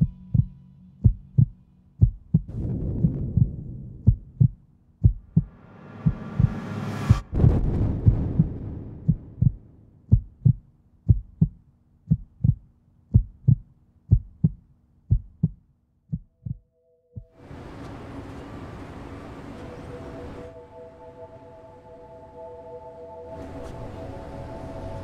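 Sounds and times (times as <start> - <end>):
soft ambient music pad: 0.0 - 2.5, 16.6 - 25.0
heartbeat thumps: 0.0 - 16.6
rumbling explosion: 2.5 - 4.4, 5.4 - 10.1.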